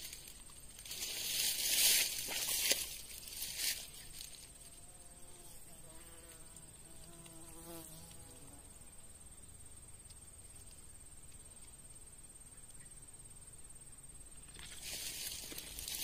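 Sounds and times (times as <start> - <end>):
rustling: 0.0 - 5.0, 14.5 - 16.0
flying insect buzzing: 1.0 - 9.2.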